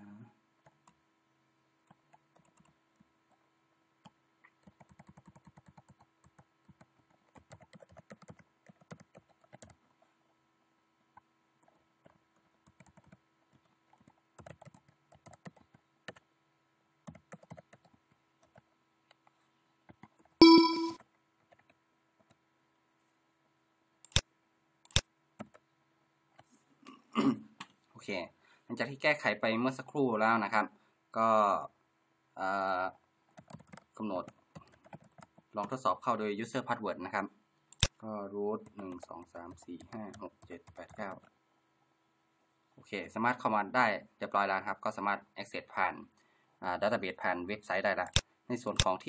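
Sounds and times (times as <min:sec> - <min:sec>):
computer keyboard typing: 0:01.9 - 0:02.8, 0:04.0 - 0:09.8, 0:11.6 - 0:16.2, 0:17.0 - 0:18.6, 0:24.9 - 0:25.6, 0:33.4 - 0:35.8
loud electronic beep: 0:20.4 - 0:21.0
sharp clicks: 0:24.0 - 0:24.2, 0:24.8 - 0:25.6, 0:37.7 - 0:38.0.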